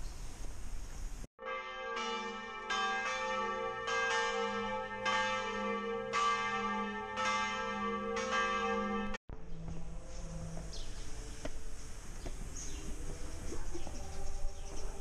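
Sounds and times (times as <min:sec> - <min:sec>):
church bells ringing: 0:01.4 - 0:11.7.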